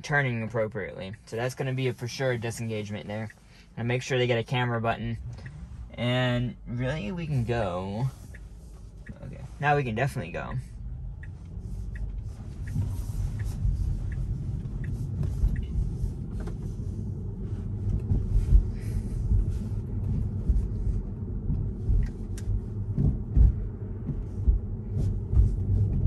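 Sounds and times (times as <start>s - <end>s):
road and tyre rumble: 0.0s - 26.0s
faint regular ticking: 0.1s - 16.3s, 21.5s - 22.6s
low thumps: 10.0s - 26.0s.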